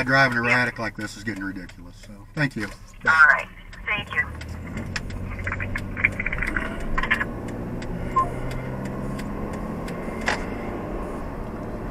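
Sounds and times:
light clicks and rattles: 0.0 - 7.9
car engine and road noise: 0.0 - 11.9.

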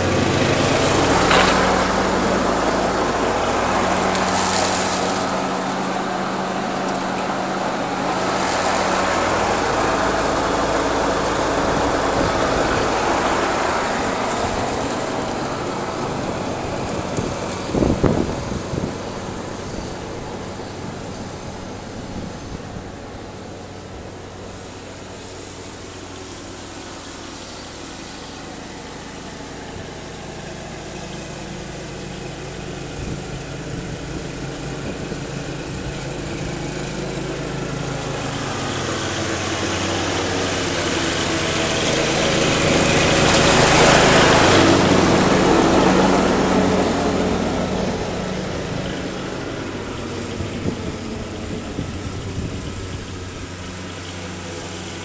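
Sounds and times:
riding lawn mower engine: 0.0 - 55.0.

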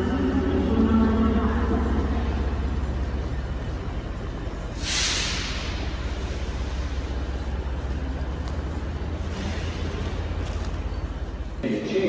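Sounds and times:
low hum of standing train: 0.0 - 12.0
air brake hiss: 4.8 - 6.5.

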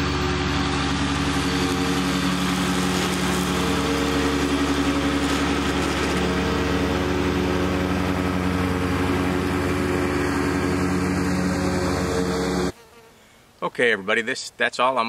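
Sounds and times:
tractor diesel engine mowing: 0.0 - 12.8.

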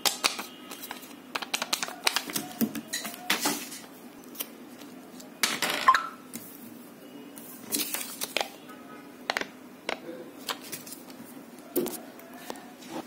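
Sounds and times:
paper rustling: 7.4 - 8.6, 10.4 - 11.2.

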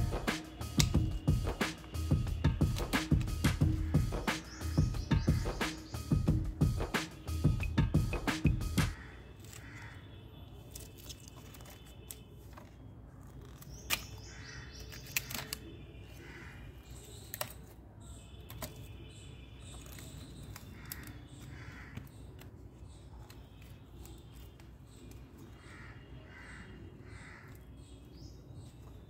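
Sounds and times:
birds chirping faintly: 0.0 - 29.0
pruning shears snipping stems: 0.4 - 2.0.

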